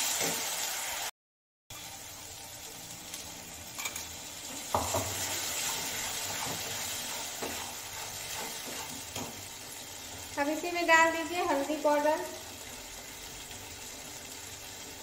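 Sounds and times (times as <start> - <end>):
paste sizzling in hot oil: 0.0 - 1.1, 1.7 - 15.0
metal spatula scraping pan: 3.8 - 9.4.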